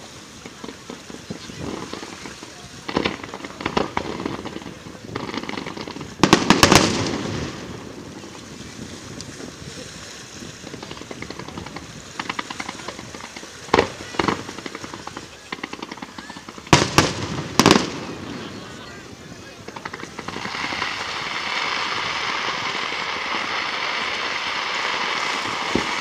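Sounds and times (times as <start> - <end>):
firework bangs: 0.0 - 8.6, 10.6 - 26.0
rapid firework popping: 0.0 - 8.6, 10.6 - 26.0.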